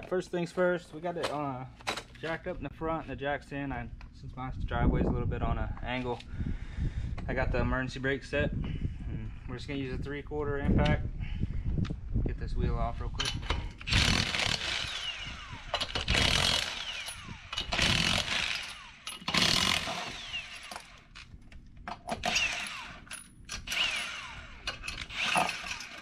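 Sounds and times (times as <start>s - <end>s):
impact wrench hammering lug nuts: 13.4s - 21.0s, 21.9s - 26.0s.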